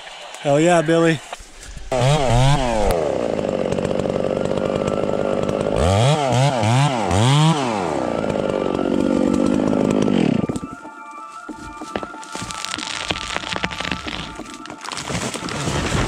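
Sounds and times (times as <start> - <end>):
chainsaw revving: 1.9 - 10.6, 12.4 - 16.0.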